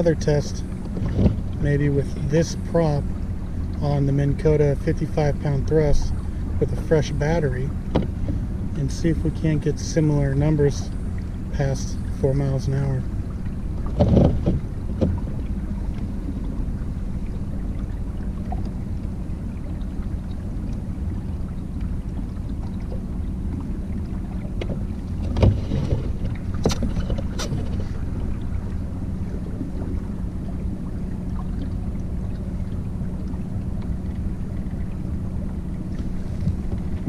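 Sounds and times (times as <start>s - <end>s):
trolling motor humming: 0.0s - 37.0s.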